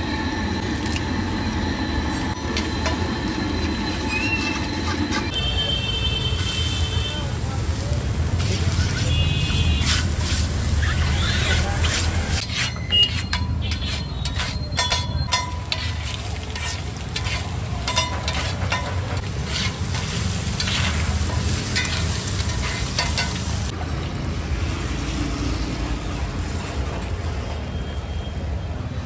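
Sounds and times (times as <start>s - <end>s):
eggs sizzling on griddle: 6.3s - 28.1s
metal spatula clinking on griddle: 11.9s - 23.5s.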